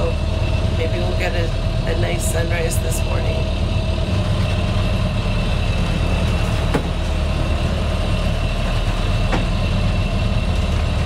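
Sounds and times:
boat engine droning: 0:00.0 - 0:11.0.

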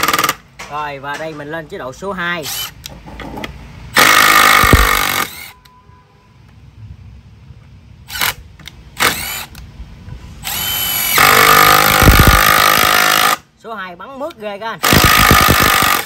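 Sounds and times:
impact driver driving screw into wood: 0:00.0 - 0:00.4, 0:04.0 - 0:05.6, 0:09.0 - 0:09.6, 0:10.4 - 0:13.4, 0:14.8 - 0:16.0.

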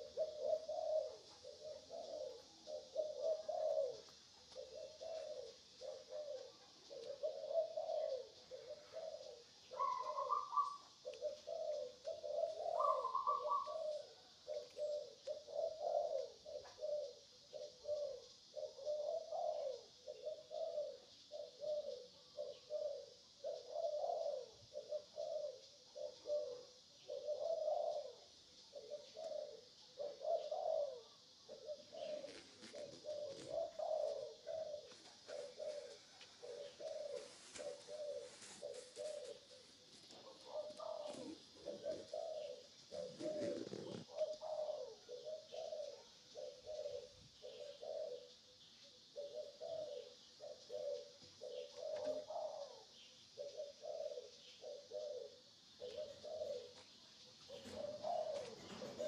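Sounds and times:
higher bird notes: 0:00.0 - 0:28.1
birds calling low notes: 0:00.0 - 0:59.0
steady high hiss: 0:00.0 - 0:59.0.

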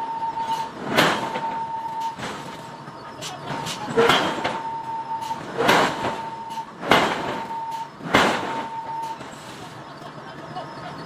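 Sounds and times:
air hammer striking hot iron: 0:05.6 - 0:07.5.

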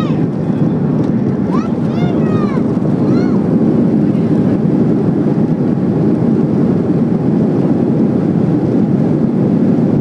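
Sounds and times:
airplane cabin engine roar: 0:00.0 - 0:10.0
rushing air: 0:00.0 - 0:10.0.

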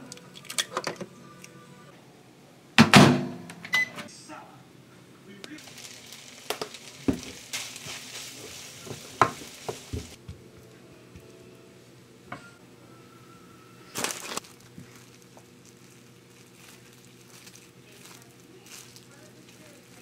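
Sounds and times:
plastic cling wrap crinkling: 0:05.6 - 0:10.2, 0:13.9 - 0:20.0
rice sizzling in a frying pan: 0:05.6 - 0:10.2
wooden spatula knocking a pan: 0:08.8 - 0:10.2.

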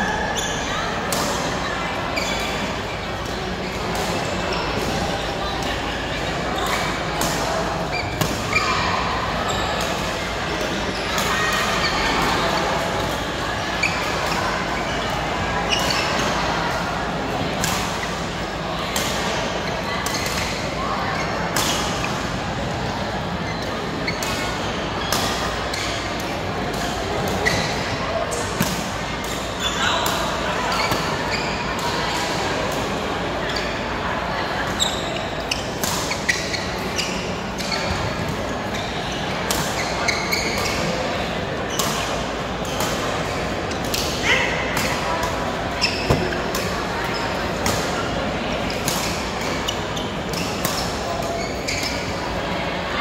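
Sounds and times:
echoing din of voices: 0:00.0 - 0:53.0
shoes squeaking on court: 0:34.7 - 0:40.9, 0:45.7 - 0:52.2.

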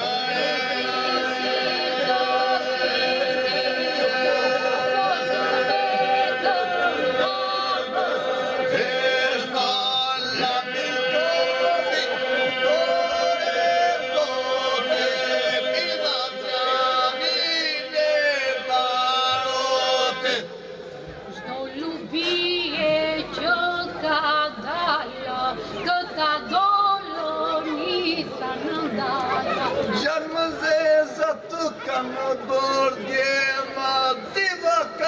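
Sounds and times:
group singing a drone: 0:00.0 - 0:21.0
lead voices singing gliding lines: 0:00.0 - 0:35.0.

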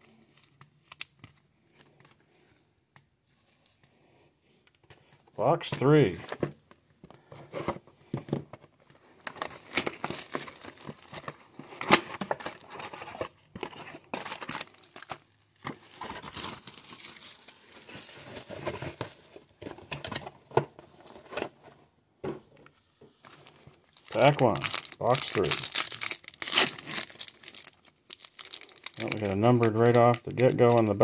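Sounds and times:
foil card packs crinkling and tearing: 0:09.2 - 0:19.2, 0:23.3 - 0:31.0.

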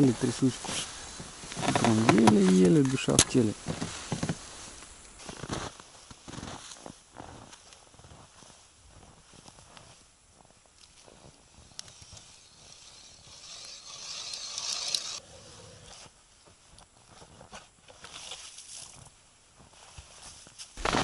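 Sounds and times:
footsteps in deep snow: 0:00.0 - 0:13.3, 0:18.5 - 0:21.0
ice auger boring into ice: 0:11.8 - 0:15.2.

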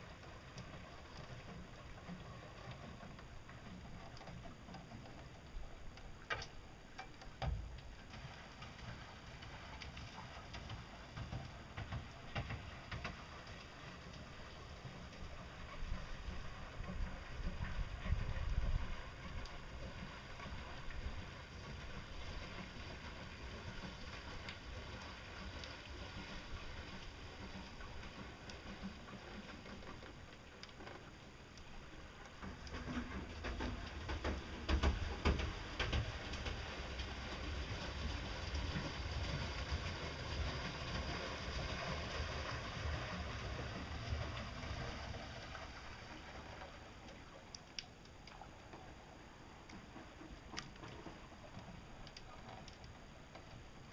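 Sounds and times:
paddle wheel churning water: 0:00.0 - 0:53.9
faint ticks: 0:00.1 - 0:14.3, 0:16.3 - 0:20.9, 0:22.4 - 0:37.1, 0:46.6 - 0:53.9
wind rumble on microphone: 0:15.2 - 0:22.3.

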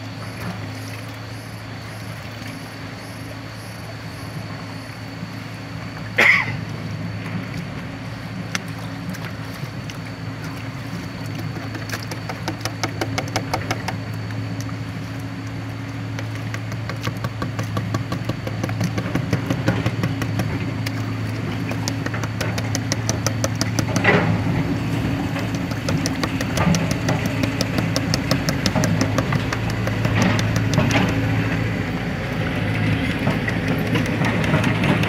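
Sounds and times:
small engine running: 0:16.2 - 0:35.0
rapid ticking: 0:21.7 - 0:24.3, 0:25.3 - 0:31.4.

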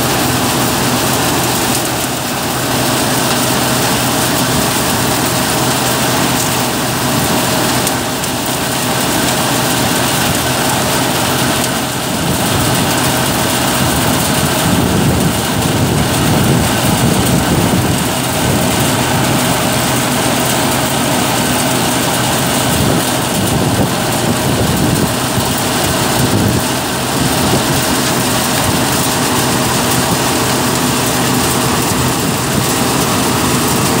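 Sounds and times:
thresher drum rushing noise: 0:00.0 - 0:34.0
tractor engine hum: 0:00.0 - 0:34.0.

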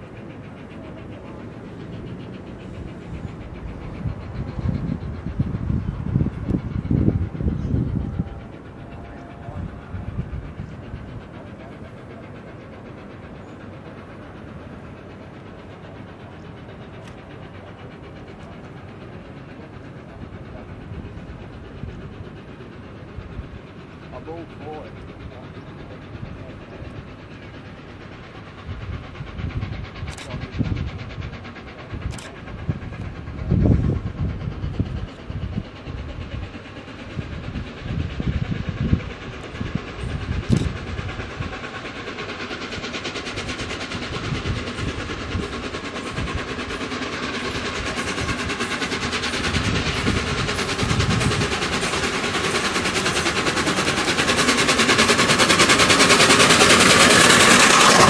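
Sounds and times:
steam locomotive exhaust beats: 0:00.0 - 0:58.0.

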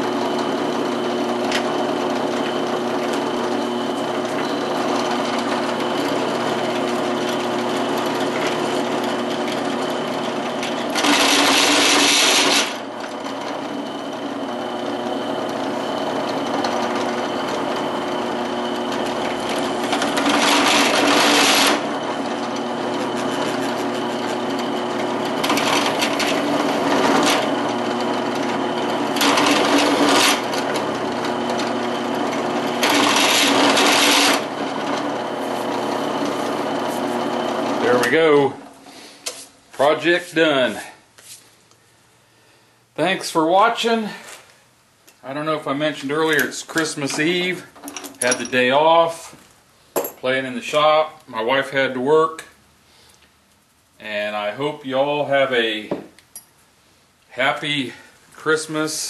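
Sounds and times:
harsh cutter cutting steel: 0:00.0 - 0:38.5
machine spindle running: 0:00.0 - 0:38.8.

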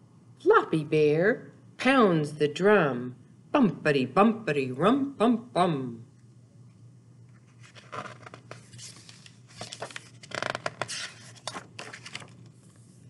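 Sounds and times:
paper page turning: 0:07.4 - 0:13.0.

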